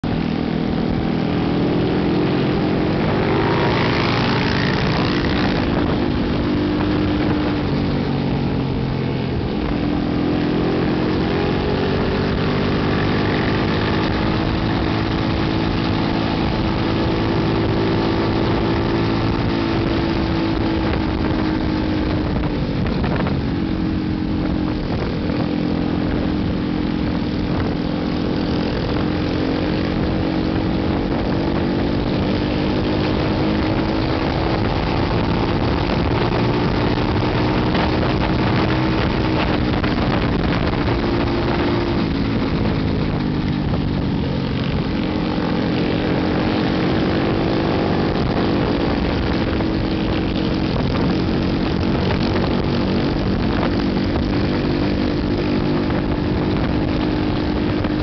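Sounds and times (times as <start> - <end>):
wind rush: 0.0 - 58.0
small motorbike engine running: 2.1 - 9.8.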